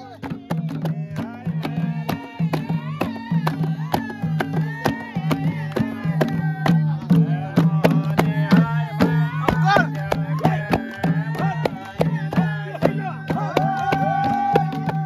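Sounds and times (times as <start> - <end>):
barrel drum: 0.0 - 15.0
group singing folk song: 0.0 - 15.0
hand claps: 8.0 - 15.0.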